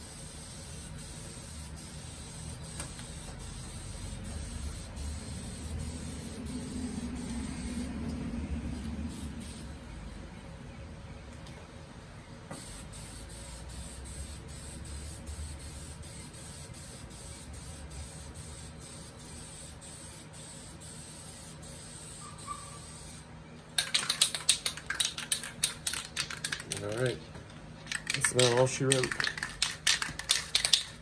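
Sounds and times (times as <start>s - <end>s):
spray can hissing: 0.0s - 8.0s, 9.1s - 9.7s, 12.5s - 23.2s, 27.9s - 31.0s
spray can rattling: 23.8s - 27.2s, 27.8s - 31.0s.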